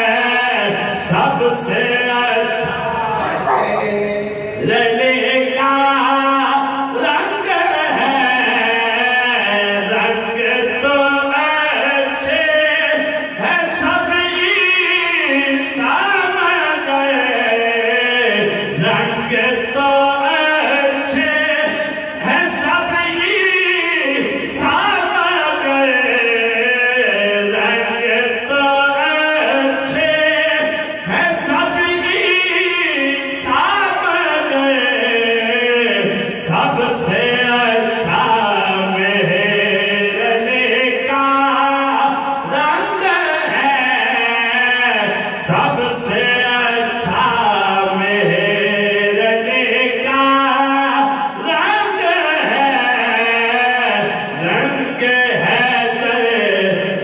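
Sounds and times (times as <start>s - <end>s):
men singing into microphones: 0.0s - 57.0s.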